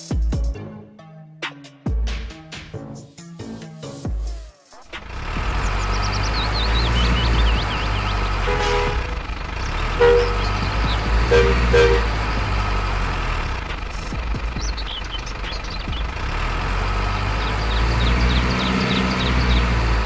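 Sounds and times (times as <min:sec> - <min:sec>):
toy truck engine rumble: 0:04.8 - 0:20.0
two-note horn toots: 0:08.1 - 0:09.3, 0:09.9 - 0:12.4.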